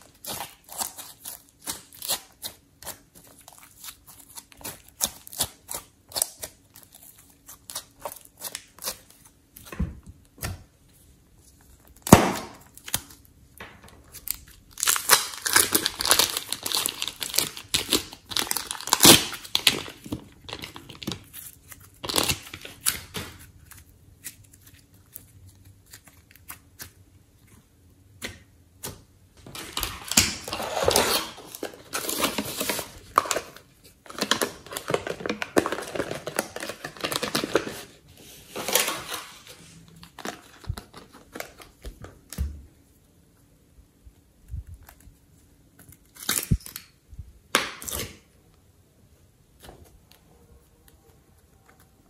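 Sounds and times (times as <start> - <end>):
plastic piping bag crinkling: 11.4 - 27.0, 29.4 - 42.4.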